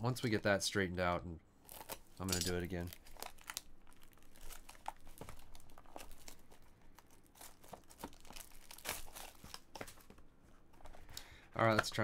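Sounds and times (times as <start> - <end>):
plastic wrap crinkling and tearing: 1.6 - 10.2.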